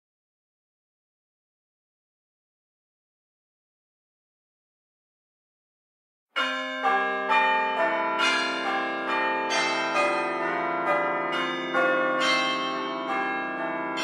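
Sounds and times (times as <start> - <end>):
bells ringing: 6.4 - 14.0.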